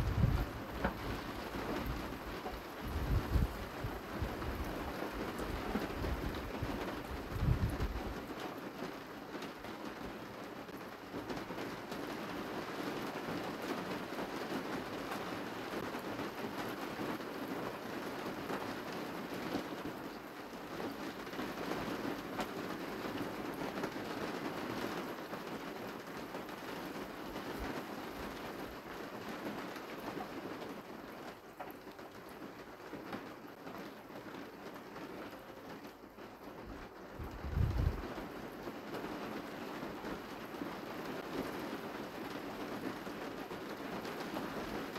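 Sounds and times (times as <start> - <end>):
rain falling steadily: 0.0 - 44.9.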